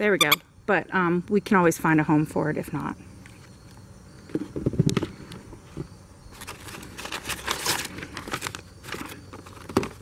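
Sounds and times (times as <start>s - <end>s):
paper crinkling and rustling: 6.3s - 10.0s.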